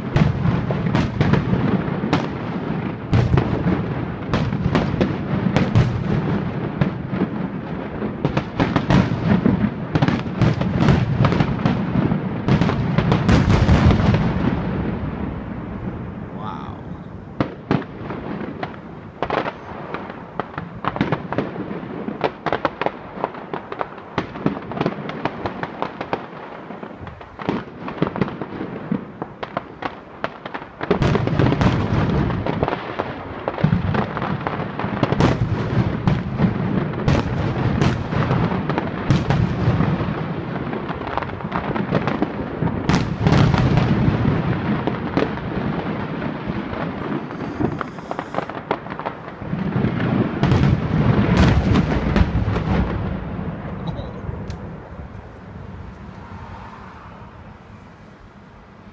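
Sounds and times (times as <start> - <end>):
firework shells bursting: 40.8 - 56.2.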